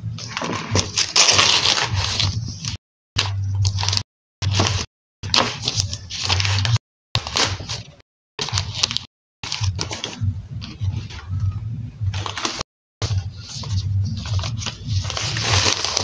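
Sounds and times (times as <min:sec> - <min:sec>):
paper and plastic rustling: 0:00.1 - 0:11.3, 0:12.1 - 0:16.0
low pulsing hum: 0:10.0 - 0:12.4, 0:13.0 - 0:15.4.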